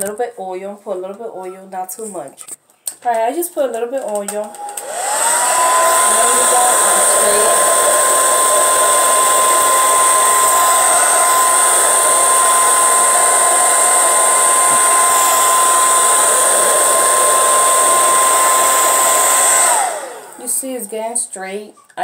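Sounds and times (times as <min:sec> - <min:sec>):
hair dryer running: 0:04.2 - 0:20.9.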